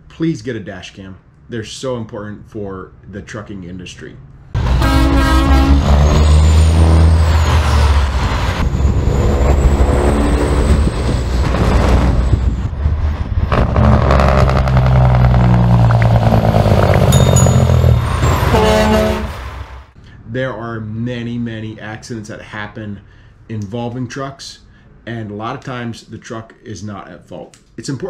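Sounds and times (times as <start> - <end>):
diesel truck engines: 4.5 - 20.3.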